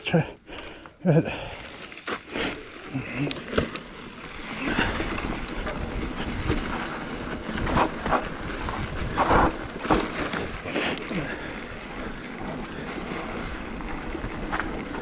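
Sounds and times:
tyres crunching over dirt: 1.1 - 15.0
bike clattering over bumps: 1.4 - 15.0.

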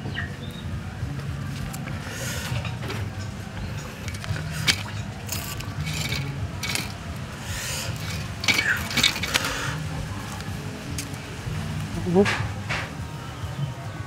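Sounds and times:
food scraping and rustling on grill: 1.5 - 11.3.

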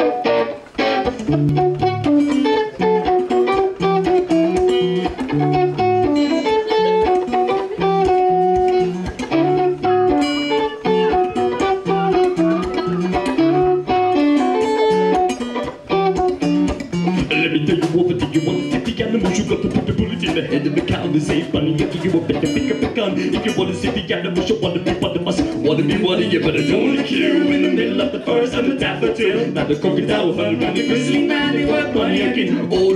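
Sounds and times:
acoustic guitars: 0.0 - 32.9
drum beat: 15.2 - 32.0
bass line: 15.9 - 32.9.

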